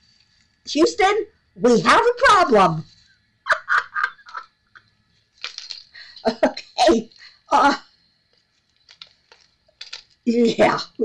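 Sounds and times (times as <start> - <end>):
woman speaking: 0.7 - 2.9, 6.3 - 7.8, 10.3 - 11.0
handling rustle: 4.3 - 6.4, 8.2 - 10.7.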